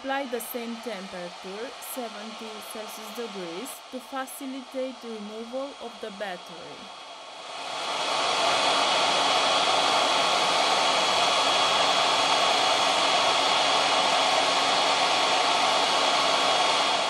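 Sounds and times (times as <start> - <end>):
hot air gun blowing: 6.9 - 17.0.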